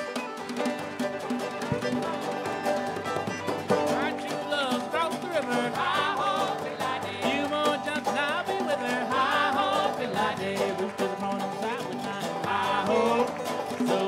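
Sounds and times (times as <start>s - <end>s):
banjo and guitar: 0.0s - 14.0s
person singing: 3.7s - 14.0s.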